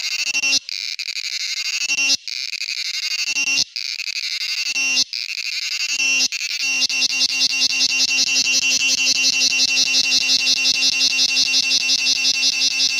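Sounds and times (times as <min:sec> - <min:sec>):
cicada shrill buzzing: 0:00.0 - 0:12.9.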